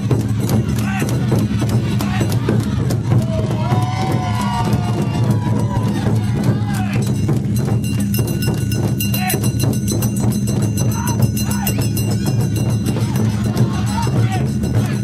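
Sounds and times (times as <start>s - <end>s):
crowd voices: 0.0s - 15.0s
steady low drum beat: 0.0s - 15.0s
hand gong clanging rapidly: 6.9s - 15.0s.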